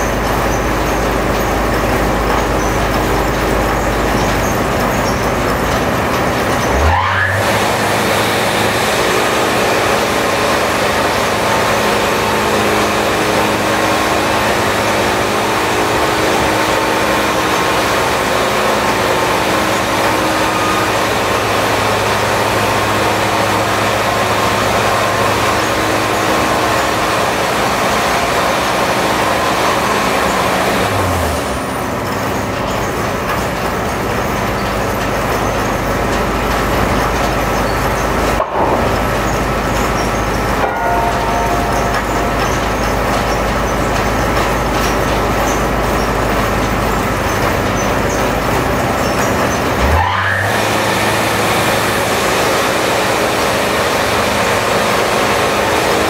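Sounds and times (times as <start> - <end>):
sawmill machinery drone: 0.0 - 56.0.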